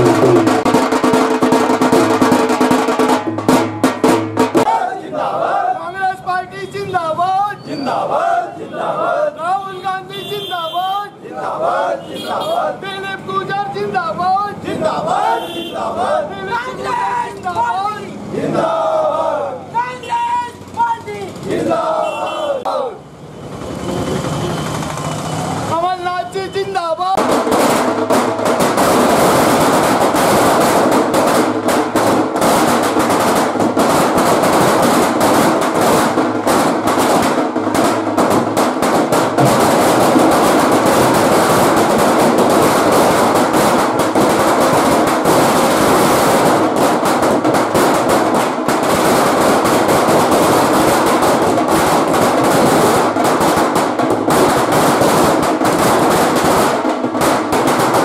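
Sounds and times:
firecrackers bursting: 0.0s - 4.8s, 27.2s - 58.0s.

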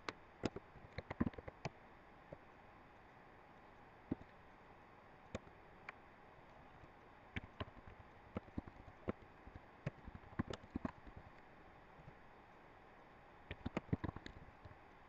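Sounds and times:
keyboard keys clicking: 13.5s - 14.4s.

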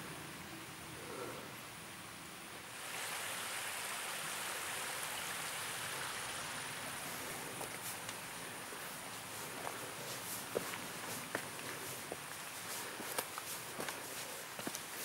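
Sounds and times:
small stream rushing: 2.5s - 15.0s
footsteps: 7.1s - 15.0s.

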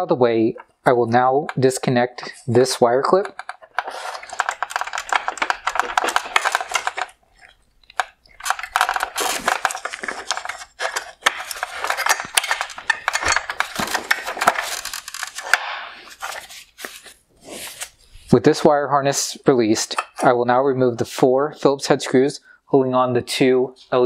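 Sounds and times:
plastic clicking and rattling: 3.1s - 7.2s, 7.8s - 17.1s.

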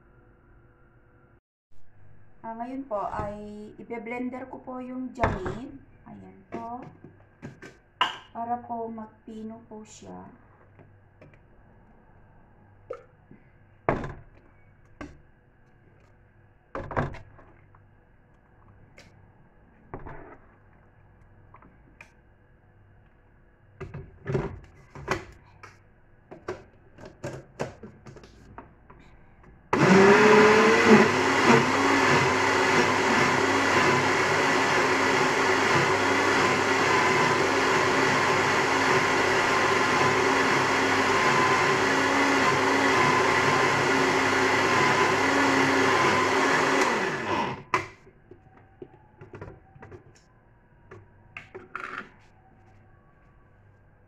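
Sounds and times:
electric blender motor: 29.7s - 47.9s.

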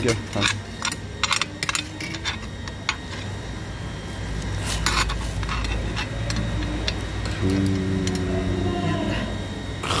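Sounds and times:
low hum: 0.4s - 10.0s.

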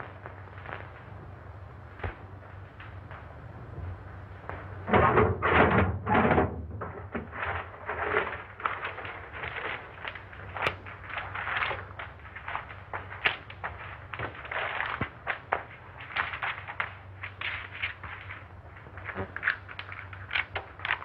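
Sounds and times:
rustling and bumping: 2.0s - 21.0s
papers rustling and tapping: 6.8s - 21.0s.

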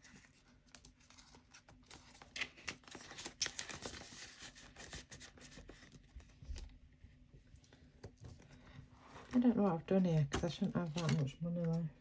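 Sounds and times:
plastic pages crinkling: 0.0s - 6.8s.

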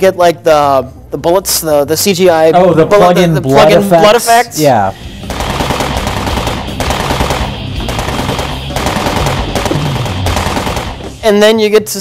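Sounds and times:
rapid automatic gunfire: 5.2s - 11.2s.

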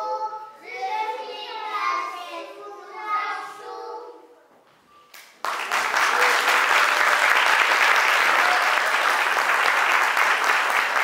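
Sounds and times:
young children singing: 0.0s - 4.5s
audience applause: 5.4s - 11.0s.

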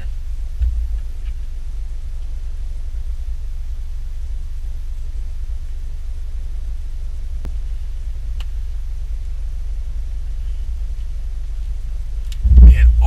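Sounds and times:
car engine idling: 0.0s - 13.0s
faint clicks: 12.2s - 12.4s.

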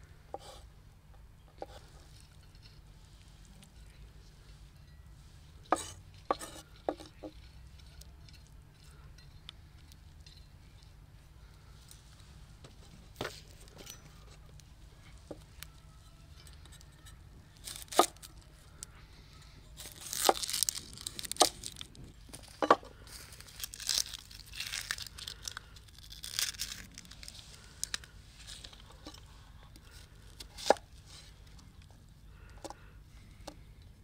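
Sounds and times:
tearing and crinkling: 17.6s - 18.6s, 19.8s - 31.6s.

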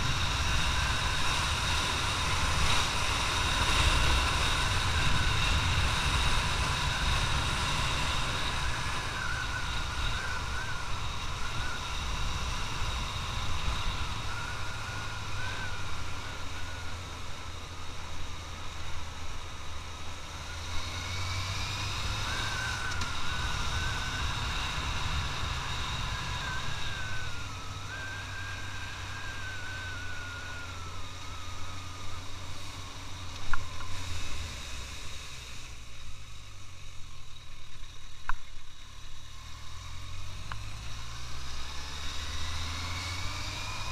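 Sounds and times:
wind noise: 0.0s - 17.3s, 20.4s - 31.4s
high whine: 0.0s - 43.9s
motorcycle engine running: 0.0s - 43.9s.

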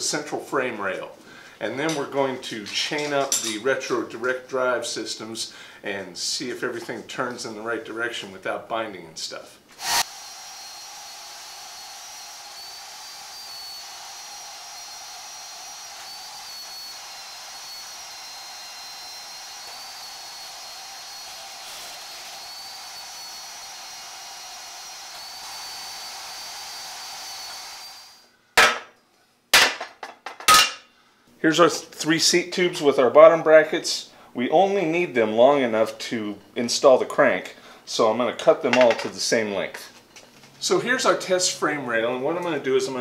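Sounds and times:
bandsaw whining: 9.8s - 28.3s.

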